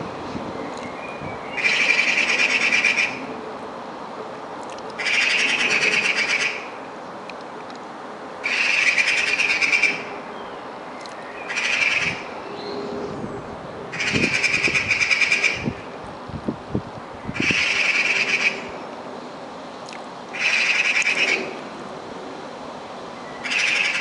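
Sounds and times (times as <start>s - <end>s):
magpie rattling chatter: 1.6s - 3.2s, 5.0s - 6.7s, 8.4s - 10.0s, 11.5s - 12.3s, 13.9s - 15.8s, 17.4s - 18.6s, 20.3s - 21.4s, 23.4s - 24.0s.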